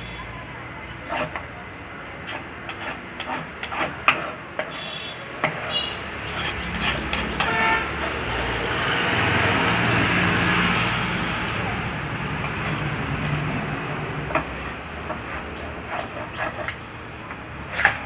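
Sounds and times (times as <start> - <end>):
saw blade cutting wood: 0.8 - 1.5, 2.2 - 8.6, 12.4 - 16.8, 17.6 - 18.0
band saw humming: 0.8 - 18.0.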